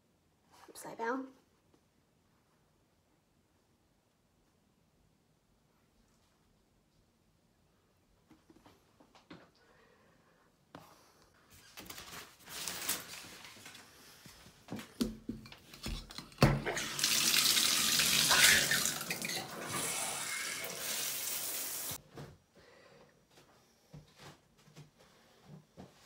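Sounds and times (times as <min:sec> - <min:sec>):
water spraying from shower head: 0:16.7 - 0:22.0.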